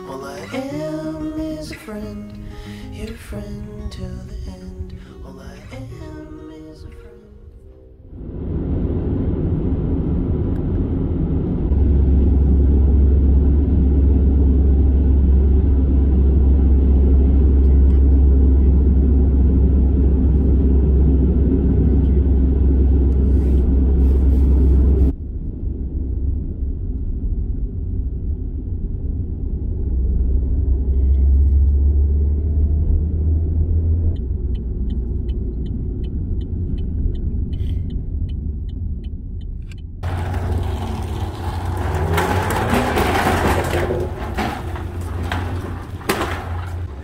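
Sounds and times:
car road rumble: 0.0s - 47.0s
light evenly spaced ticks: 34.1s - 40.0s.

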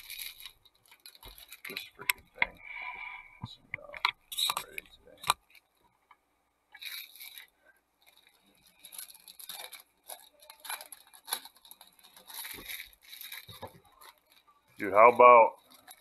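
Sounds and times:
foil wrapper crinkling and tearing: 0.0s - 2.1s, 6.8s - 14.5s, 15.6s - 16.0s.

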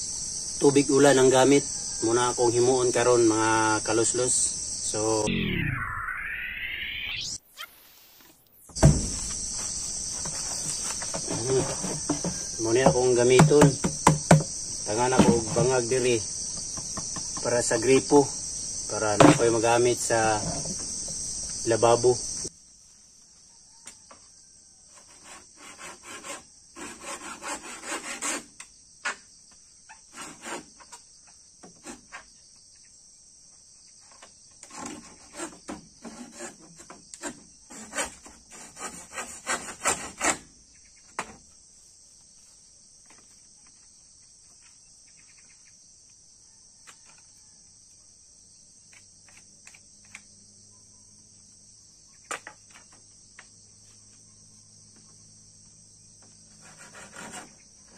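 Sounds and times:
knocks: 8.8s - 9.4s, 11.1s - 14.5s
handsaw cutting a pole: 25.0s - 28.6s, 30.1s - 30.7s, 34.7s - 40.5s, 56.6s - 57.9s.

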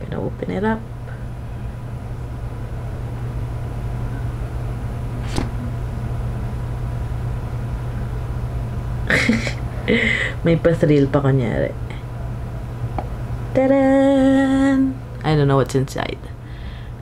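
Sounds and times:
steady low hum: 0.0s - 17.0s
cardboard lid click: 5.2s - 5.6s.

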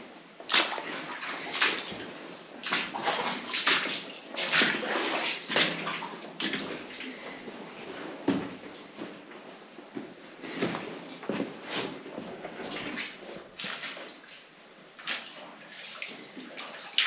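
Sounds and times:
boots splashing through water: 0.5s - 7.3s, 12.7s - 14.4s.

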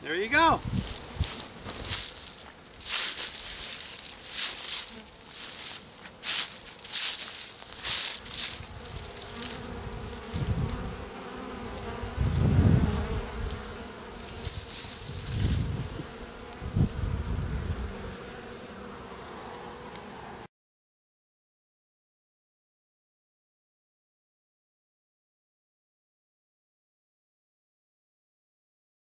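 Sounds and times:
bees buzzing: 0.0s - 20.5s
rustling hiss: 0.5s - 17.8s.

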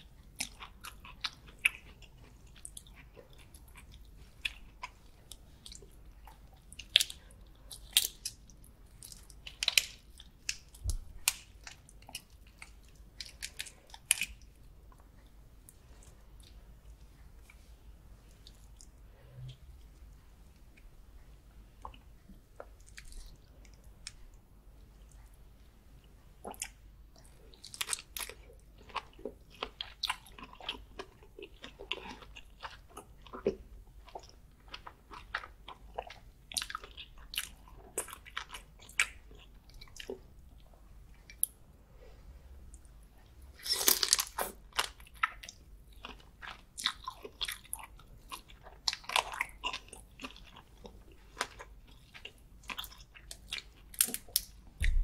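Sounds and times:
close mouth chewing sounds: 26.4s - 41.6s, 42.6s - 55.0s.

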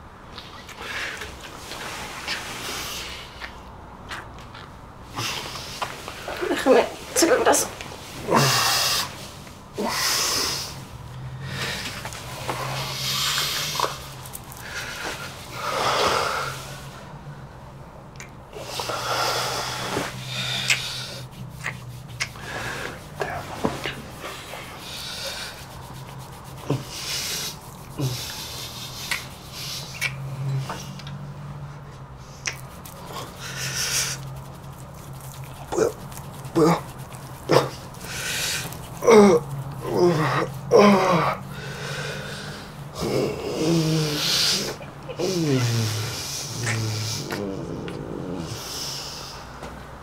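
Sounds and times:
steady low hum: 0.0s - 50.0s
man snoring: 39.0s - 49.3s.

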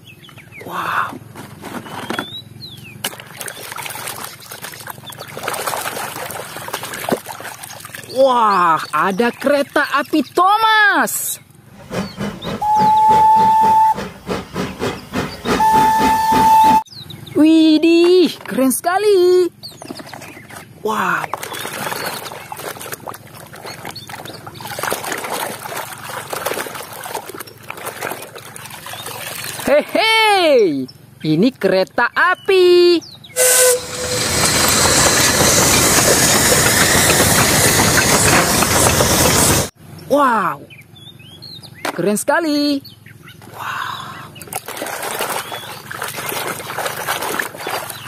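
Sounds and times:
water splashing and trickling: 2.4s - 11.1s, 19.6s - 30.2s, 43.3s - 48.0s.

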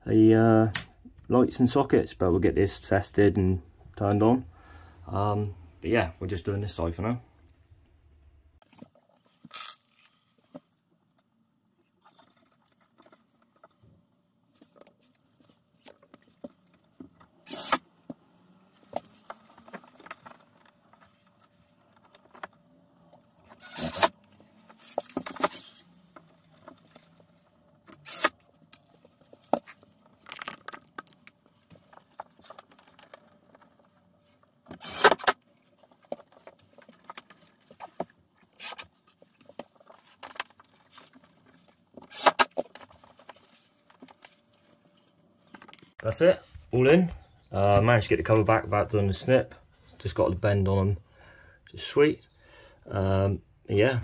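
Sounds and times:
tools clinking and scraping on cable: 8.6s - 10.6s, 19.0s - 46.0s.

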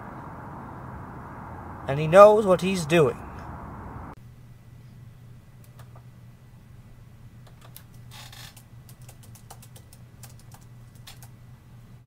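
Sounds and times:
low hum: 0.0s - 7.4s
laptop keyboard typing: 7.5s - 11.3s.

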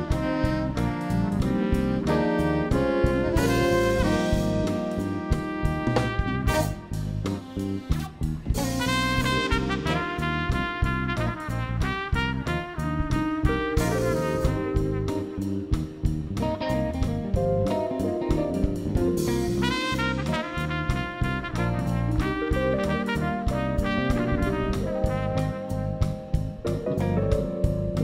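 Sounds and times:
drum kit beat: 0.0s - 28.0s
electric bass: 0.0s - 28.0s
keyboards: 0.0s - 28.0s
trumpet and saxophone melody: 0.0s - 28.0s
electric guitar: 13.7s - 20.5s.

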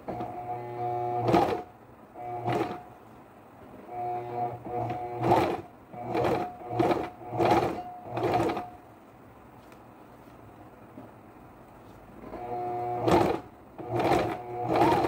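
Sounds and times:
sewing machine stitching: 0.1s - 2.8s, 3.9s - 8.8s, 12.3s - 15.0s.

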